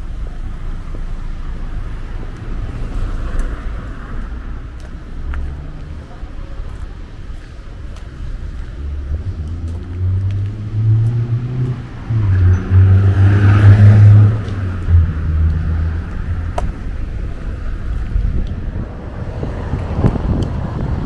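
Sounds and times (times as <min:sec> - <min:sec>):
vehicle accelerating past: 0:08.8 - 0:16.5.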